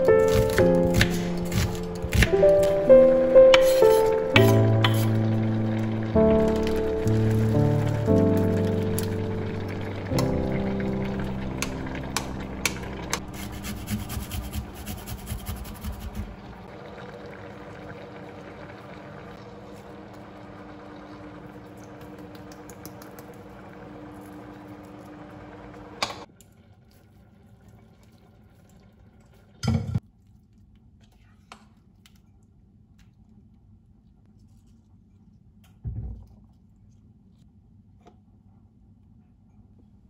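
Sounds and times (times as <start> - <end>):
sauce bubbling: 1.5 - 15.1, 15.8 - 29.6
spoon scraping a saucepan: 3.5 - 5.3.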